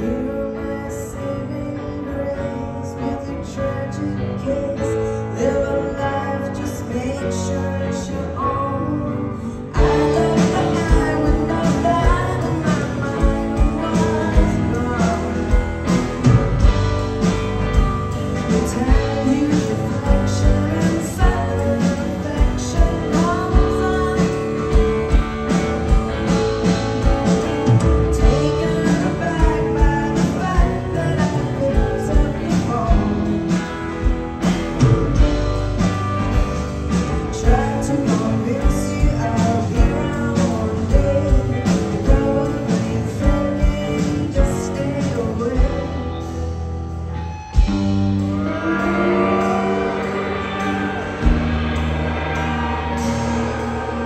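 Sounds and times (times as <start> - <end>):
woman singing: 0.0 - 16.2, 18.4 - 25.2, 28.1 - 33.6, 37.2 - 46.3
electric guitar: 0.0 - 54.0
steady drum beat: 9.8 - 42.5, 47.6 - 54.0.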